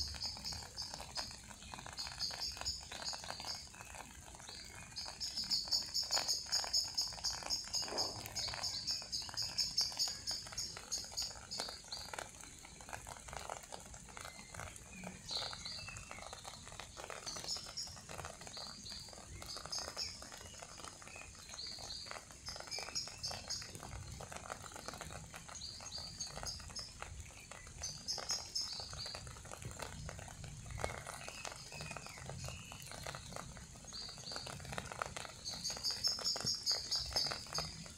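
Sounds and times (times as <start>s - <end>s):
raindrops pattering: 0.0s - 37.9s
songbirds chirping: 0.0s - 37.9s.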